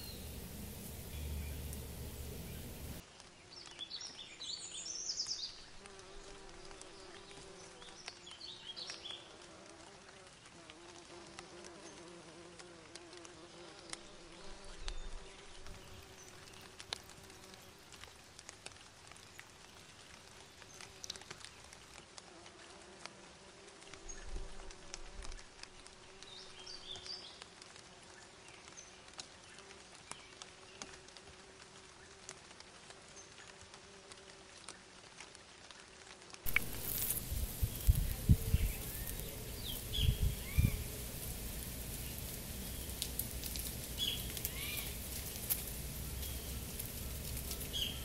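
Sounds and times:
flying insects buzzing: 0.0 - 3.0, 5.8 - 19.5, 36.0 - 48.0.

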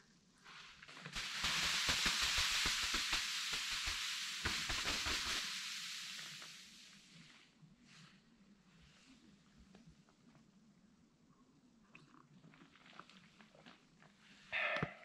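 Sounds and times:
snow sliding off tarp: 0.6 - 7.4.

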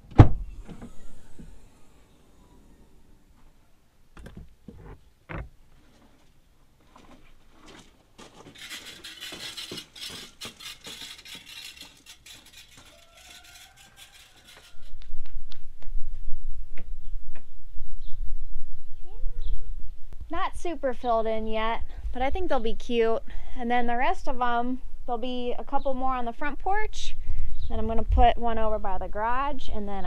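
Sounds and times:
rustling and crinkling: 4.2 - 16.0.

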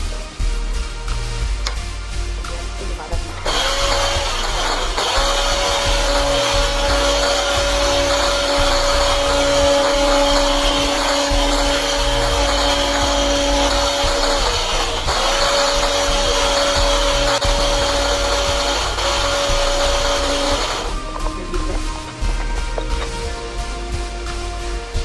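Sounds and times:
electric hand mixer whipping batter: 3.3 - 23.3.

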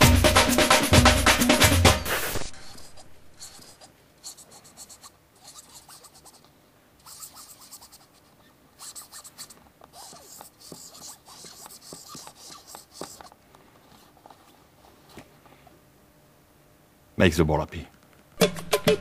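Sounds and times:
pen scratching on football: 2.0 - 15.3.

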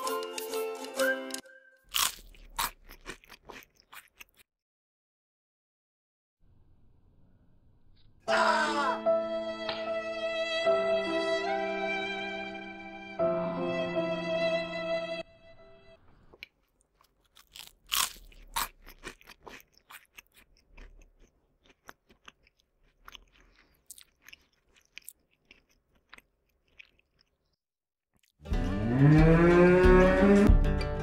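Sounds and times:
music: 0.0 - 1.9, 8.3 - 16.0, 28.4 - 31.0.

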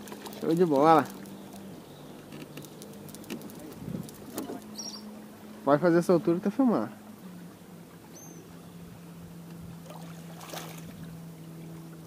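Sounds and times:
fish splashing in water: 0.0 - 1.7, 9.8 - 11.0.

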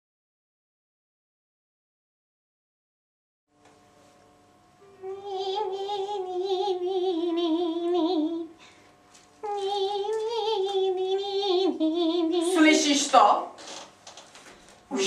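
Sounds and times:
woman singing with vibrato: 5.0 - 8.6, 9.4 - 13.5.

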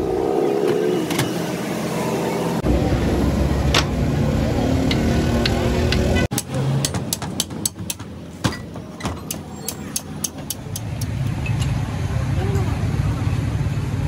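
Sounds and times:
street traffic hum: 0.0 - 14.0
hammer tapping on metal: 4.8 - 11.1.

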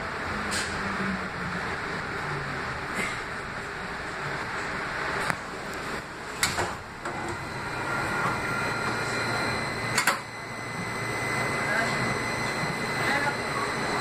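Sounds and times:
light rail car running noise: 0.0 - 14.0
sliding doors clunking: 6.2 - 9.0.

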